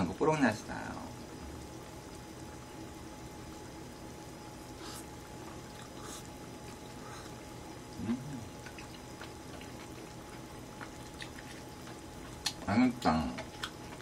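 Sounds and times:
pot bubbling: 0.0 - 14.0
slurping and chewing: 5.7 - 7.4, 8.0 - 12.6
person humming: 8.0 - 8.6.

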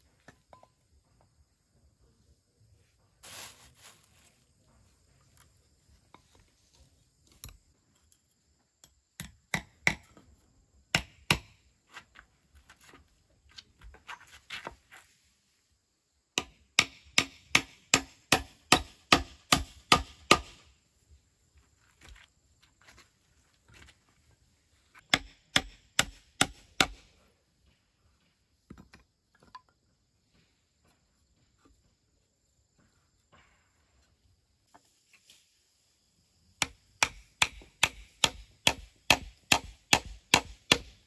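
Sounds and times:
hammer nailing into wood: 16.4 - 20.6, 25.1 - 27.1, 36.6 - 41.0.

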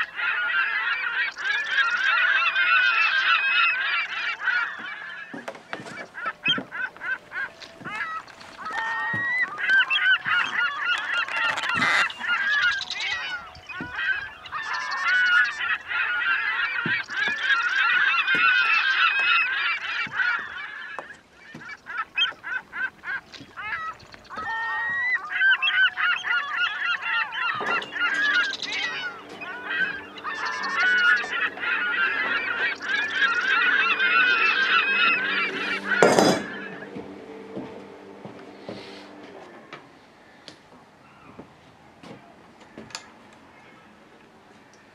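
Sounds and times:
gulls calling: 0.0 - 44.9
steady low hum: 21.8 - 40.4.

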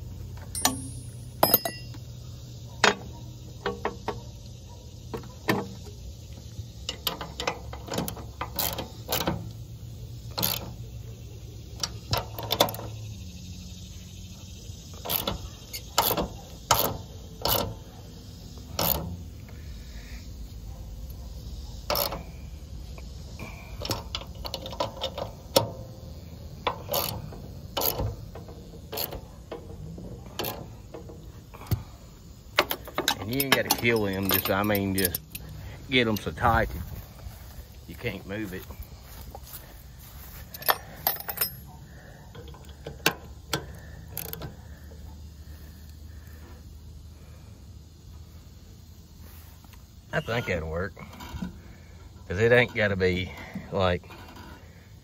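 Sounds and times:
wrench clicking on bolts: 6.8 - 9.6, 10.3 - 10.8, 14.9 - 17.8, 18.7 - 19.1, 21.8 - 22.3, 23.8 - 25.8, 26.6 - 29.7, 30.3 - 31.8, 32.6 - 36.5, 42.4 - 44.5.

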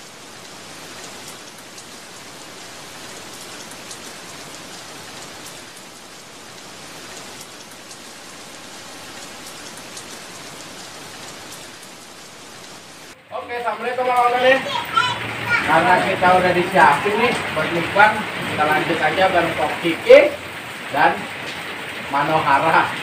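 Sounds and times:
rain falling: 0.0 - 23.0.

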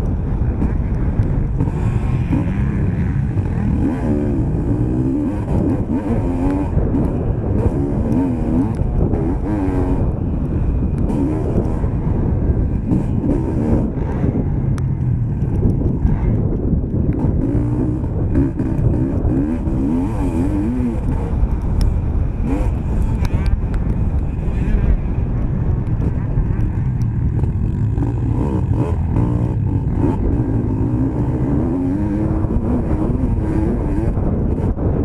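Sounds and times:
motocross bike engine revving: 0.0 - 23.7, 25.9 - 35.0.

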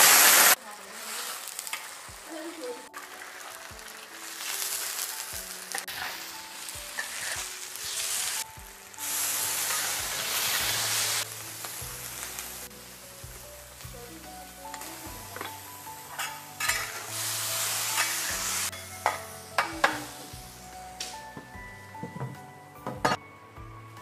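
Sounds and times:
tofu sizzling in hot oil: 0.0 - 21.5
metal spatula knocking and scraping: 16.2 - 17.0.

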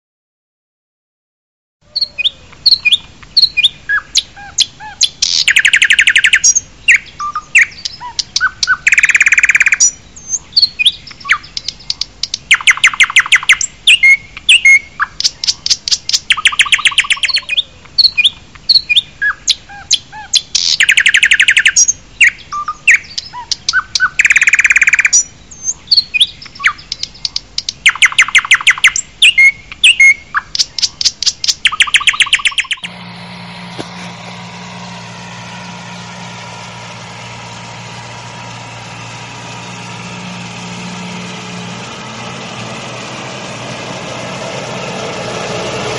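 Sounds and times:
birds chirping and trilling: 1.8 - 45.9
low engine idle: 31.7 - 45.9.

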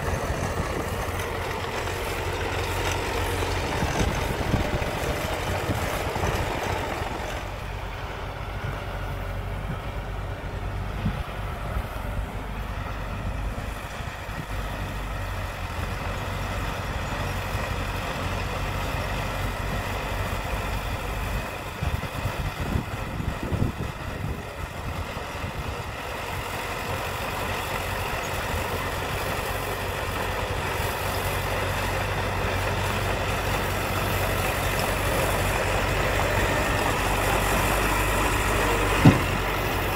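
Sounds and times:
bulldozer diesel engine: 0.0 - 39.9
loud irregular knocks: 38.9 - 39.5.

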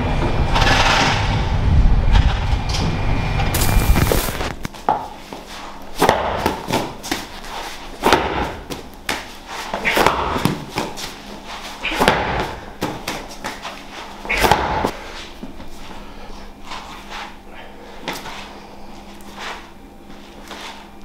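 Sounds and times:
medicine ball hitting rubber mats: 6.0 - 7.4, 8.0 - 11.2, 11.8 - 13.7, 14.3 - 15.0.

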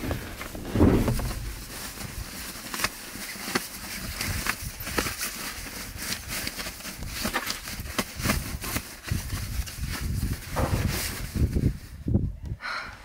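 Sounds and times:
dull thumps: 0.0 - 2.9, 10.5 - 11.2
bedding and gear rustling: 0.0 - 12.0.

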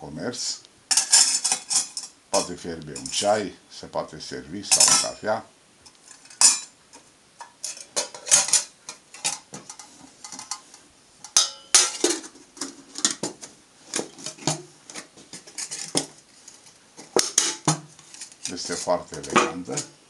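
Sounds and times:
metal pots clinking: 0.9 - 3.2, 4.7 - 5.2, 6.1 - 6.8, 7.4 - 20.0
metallic ring: 11.2 - 12.0.

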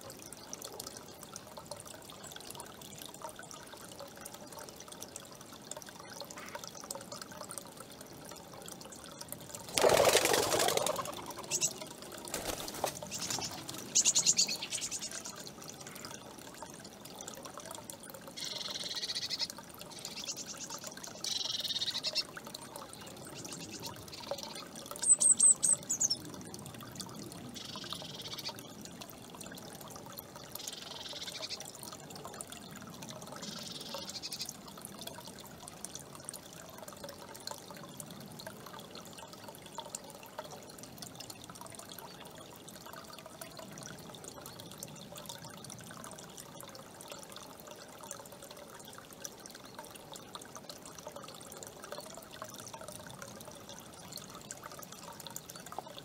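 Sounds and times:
fountain trickling: 0.0 - 56.0
hawk wings flapping: 9.7 - 11.4, 12.3 - 13.9.

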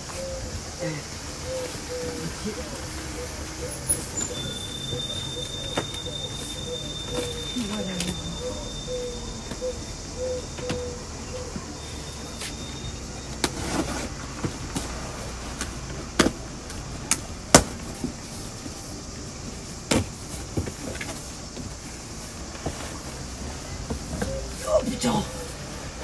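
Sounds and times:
cardboard box scraping and knocking: 13.4 - 15.0.

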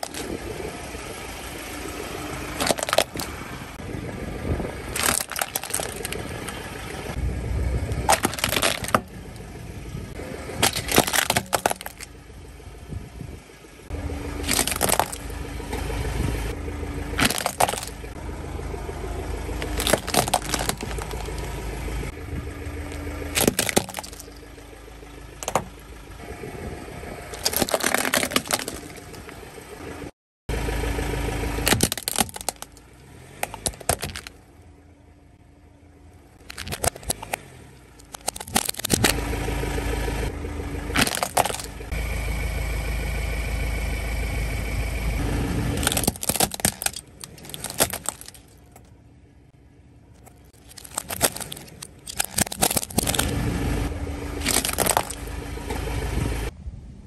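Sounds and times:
plastic toys cracking under tyre: 0.0 - 0.4, 2.5 - 3.4, 4.9 - 6.6, 8.0 - 9.4, 10.6 - 12.1, 14.4 - 15.8, 17.2 - 18.2, 19.6 - 21.5, 22.9 - 24.4, 25.4 - 25.8, 27.3 - 29.3, 31.6 - 34.4, 36.4 - 37.4, 38.0 - 39.3, 40.9 - 41.9, 45.7 - 48.9, 50.2 - 53.5, 54.4 - 55.8
car tyre rumble on asphalt: 0.0 - 57.0.

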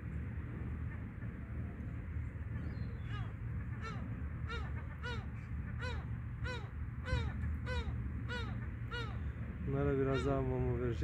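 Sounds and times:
wind rumble on microphone: 0.0 - 11.0.

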